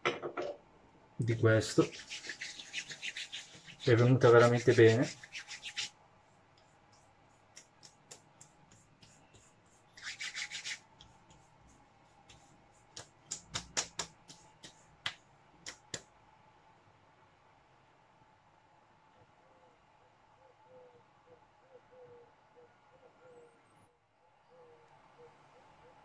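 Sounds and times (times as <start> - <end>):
hand rubbing on skin: 1.3 - 16.1.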